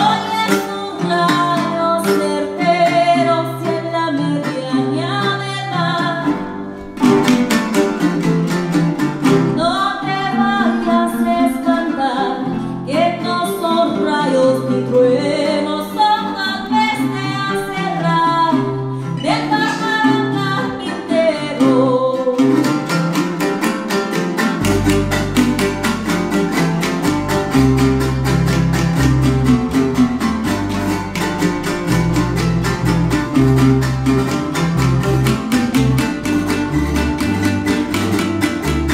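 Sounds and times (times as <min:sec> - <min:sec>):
woman singing: 0:00.0 - 0:06.7, 0:09.5 - 0:22.9
fast-strummed strings: 0:00.0 - 0:38.9
electric bass: 0:24.4 - 0:38.9.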